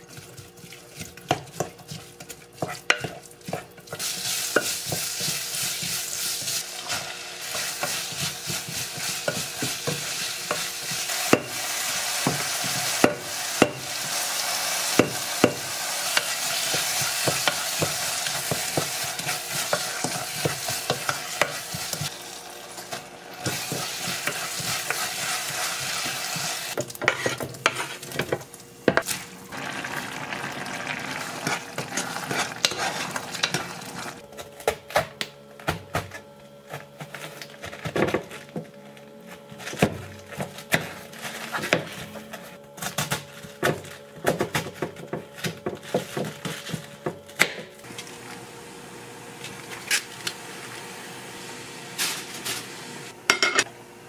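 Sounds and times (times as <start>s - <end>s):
wooden spatula scraping pot: 0.0s - 22.1s, 22.8s - 28.4s, 29.0s - 34.2s
food sizzling in a pot: 1.3s - 34.2s, 47.8s - 53.7s.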